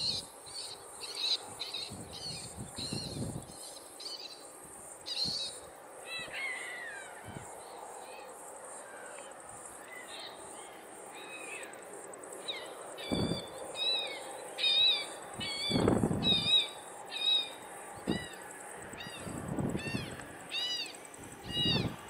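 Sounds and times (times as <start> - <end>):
bird calling: 0.0 - 22.0.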